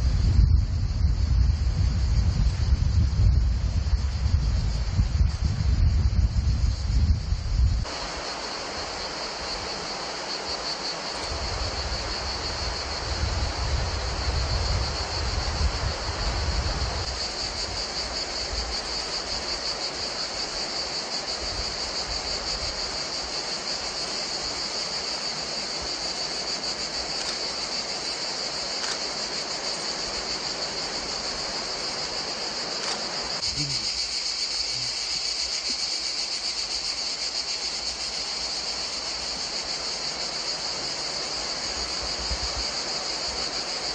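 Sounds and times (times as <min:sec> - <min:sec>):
wind rumble on microphone: 0:00.0 - 0:07.9, 0:11.2 - 0:19.2, 0:41.8 - 0:42.8
insects chirring: 0:00.0 - 0:43.9.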